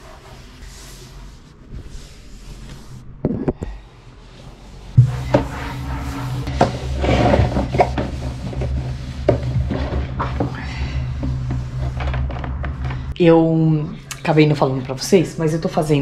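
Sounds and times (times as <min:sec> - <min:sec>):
steady low hum: 0:00.0 - 0:16.0
clattering and rubbing: 0:04.9 - 0:13.2.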